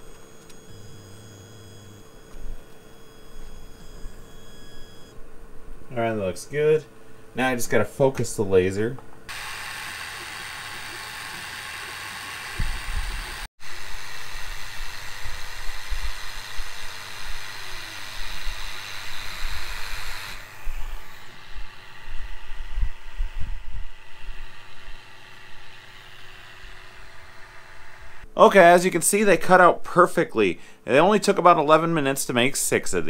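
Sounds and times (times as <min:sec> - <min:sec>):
motors whirring: 0:00.0 - 0:05.2, 0:09.2 - 0:28.3
air pump hissing: 0:09.3 - 0:28.3.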